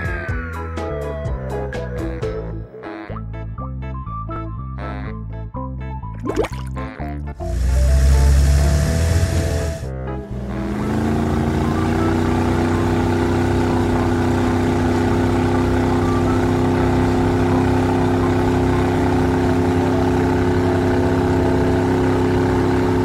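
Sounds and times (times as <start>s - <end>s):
cartoon vehicle engine drone: 6.8s - 23.0s.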